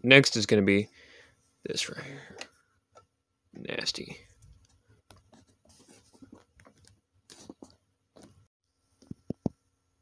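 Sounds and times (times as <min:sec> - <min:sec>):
soft rubbing: 0:04.3 - 0:06.5.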